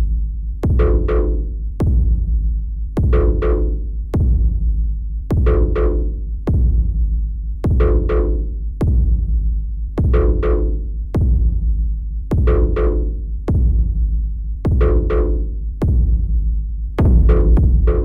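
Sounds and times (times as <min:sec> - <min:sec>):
heavy bass: 0:00.0 - 0:18.0
electronic music: 0:17.0 - 0:18.0
sharp drum hits: 0:17.0 - 0:18.0.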